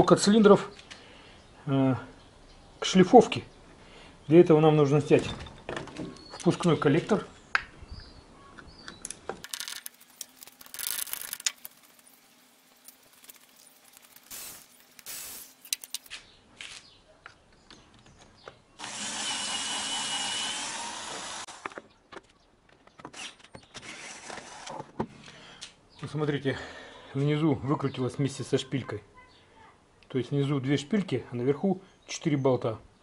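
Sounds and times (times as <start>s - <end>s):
cordless drill whining: 18.8s - 21.7s.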